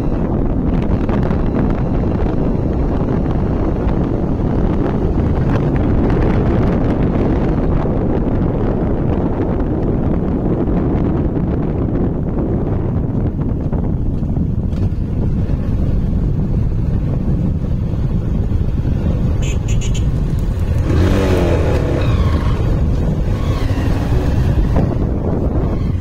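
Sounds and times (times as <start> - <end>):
road noise: 0.0 - 26.0
wind buffeting microphone: 0.0 - 26.0
motorcycle engine: 13.5 - 26.0.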